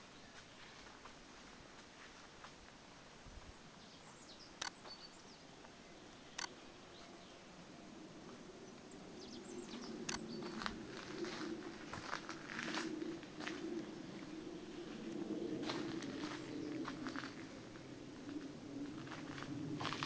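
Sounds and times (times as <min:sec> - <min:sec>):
faint bird chirps: 0:03.4 - 0:11.7
sharp clicks: 0:04.5 - 0:05.0, 0:06.3 - 0:06.6, 0:10.0 - 0:10.4
low murmur: 0:05.4 - 0:20.0.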